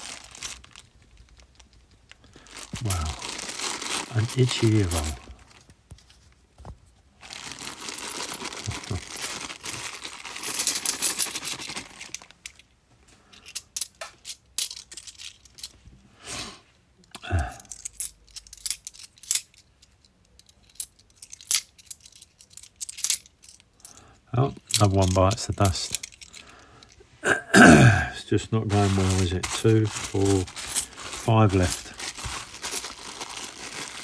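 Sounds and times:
plastic bag crinkling: 0.0s - 5.7s, 7.2s - 12.7s, 24.4s - 26.7s, 27.7s - 34.0s
coins clinking: 28.5s - 34.0s.

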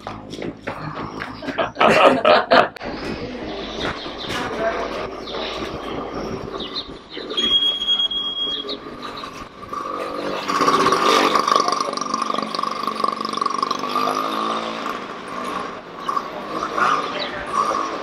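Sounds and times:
brief high steady tone: 7.3s - 8.8s
motorcycle engine passing by: 8.6s - 18.0s.

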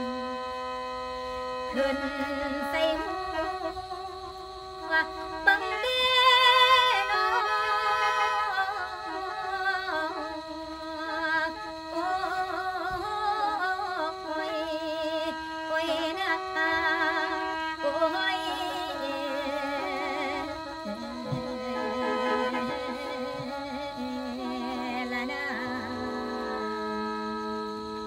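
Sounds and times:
woman singing: 1.7s - 27.8s
free-reed mouth organ melody: 20.4s - 28.0s.

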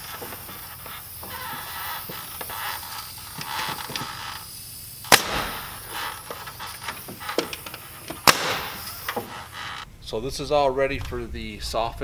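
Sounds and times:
nail gun firing: 5.1s - 9.4s.

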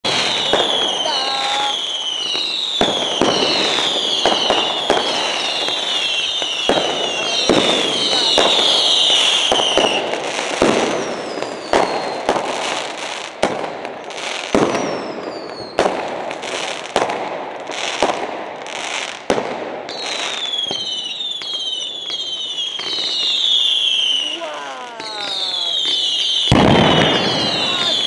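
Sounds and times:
fireworks bangs: 0.0s - 28.0s
fireworks crackling: 0.0s - 28.0s
high falling whistles: 1.7s - 10.0s, 19.9s - 28.0s.

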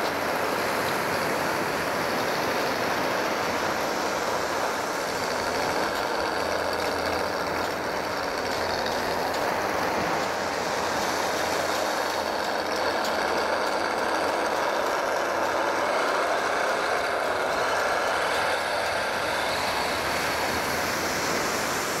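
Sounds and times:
surf breaking on a beach: 0.0s - 22.0s
toy car driving over sand: 0.0s - 22.0s.

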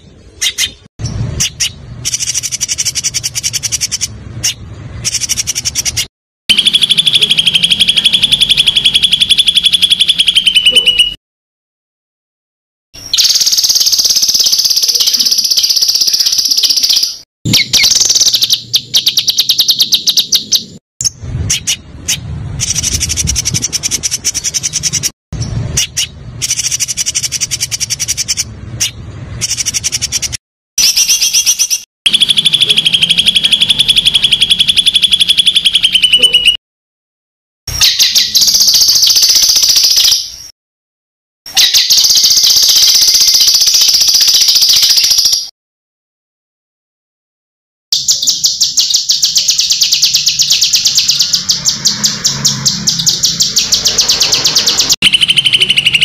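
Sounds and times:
songbird trilling: 0.3s - 11.2s, 13.0s - 36.6s, 48.0s - 56.0s.

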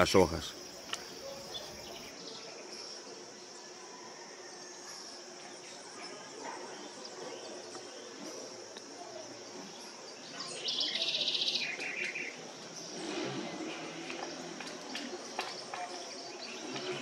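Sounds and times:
bird buzzy chatter: 0.0s - 2.1s.

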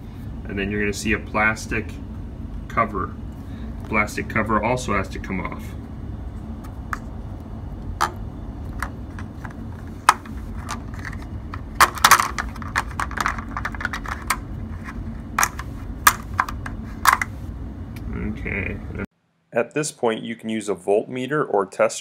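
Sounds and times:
plastic cover clicking and knocking: 8.8s - 14.4s.

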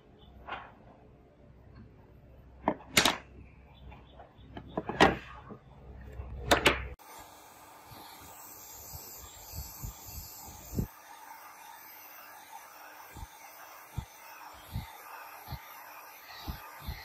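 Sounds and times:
steady hiss: 7.0s - 17.0s.

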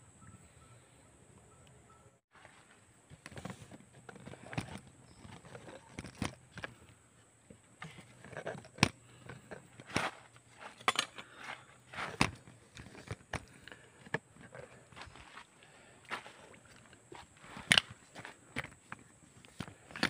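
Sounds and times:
footsteps on dirt and stones: 2.3s - 4.2s, 9.4s - 20.0s.

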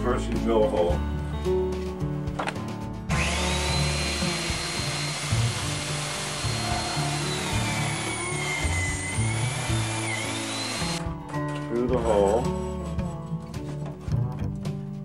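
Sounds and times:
guitar music: 0.0s - 15.0s
electric drill boring wood: 3.1s - 11.0s.

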